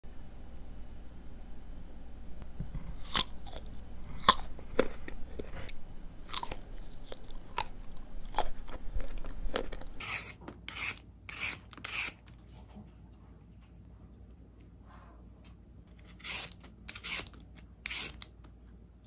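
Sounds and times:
crunching bites and chewing: 2.8s - 12.2s
vegetable peeler scraping: 2.9s - 12.3s, 15.9s - 18.3s.

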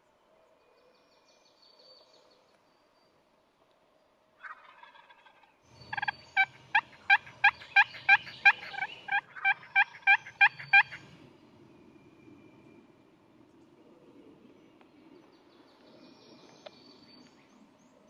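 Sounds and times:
wild turkey yelping: 4.4s - 11.1s.

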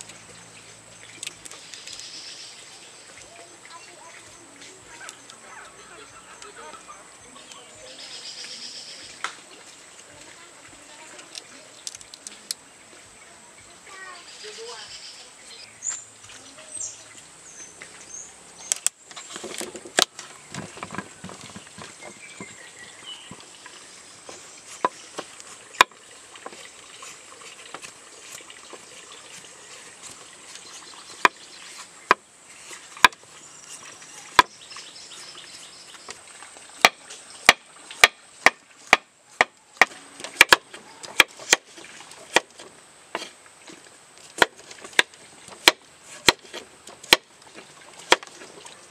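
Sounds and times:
insect chorus: 0.0s - 38.6s
knife chopping on wooden board: 36.8s - 41.7s, 42.3s - 42.6s, 44.4s - 47.3s, 48.1s - 48.3s.

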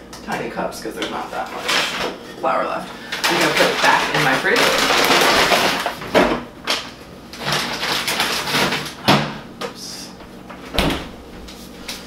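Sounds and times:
paper bag rustling: 3.2s - 6.1s.

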